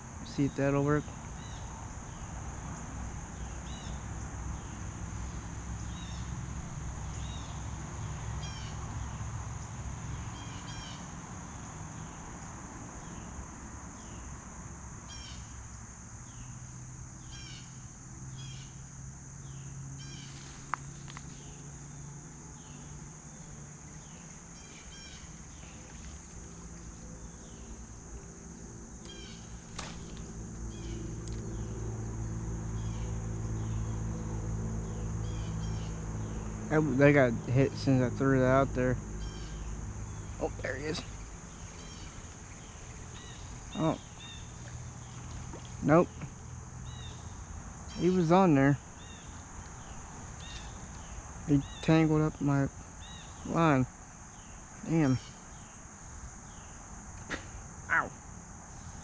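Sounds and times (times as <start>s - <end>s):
crickets droning: 0.0s - 59.0s
insect chirps: 0.0s - 59.0s
low steady rumble: 25.3s - 52.9s
sharp click: 29.0s - 31.5s.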